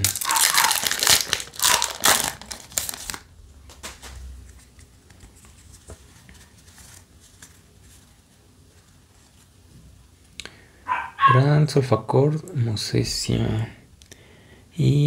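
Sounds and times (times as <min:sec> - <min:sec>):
cards rustling and clicking: 0:00.0 - 0:08.1
foil wrapper crinkling: 0:00.0 - 0:08.3.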